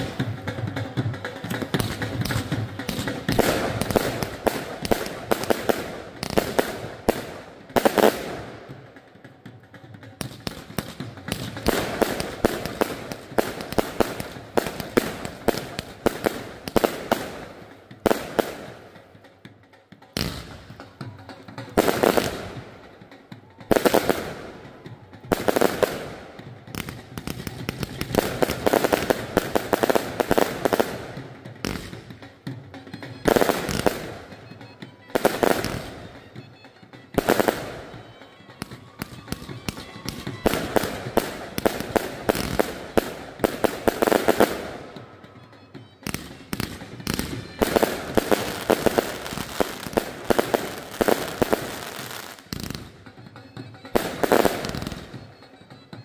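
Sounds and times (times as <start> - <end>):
fireworks popping and crackling: 0.0 - 56.0
loud firework bangs: 1.4 - 8.7, 33.2 - 34.4, 35.1 - 36.2, 38.6 - 45.0, 46.0 - 52.9.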